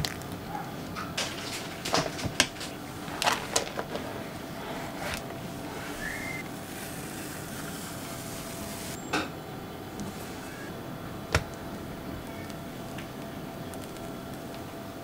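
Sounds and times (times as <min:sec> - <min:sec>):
kitchen tools handled: 0:01.0 - 0:06.4
steady background hiss: 0:02.0 - 0:15.0.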